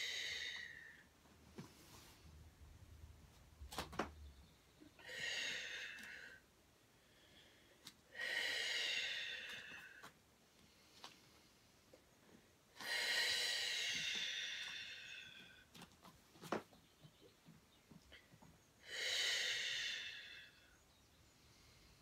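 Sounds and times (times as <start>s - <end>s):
woman breathing deeply: 0.0s - 1.1s, 4.9s - 11.8s, 12.8s - 15.7s, 18.1s - 22.0s.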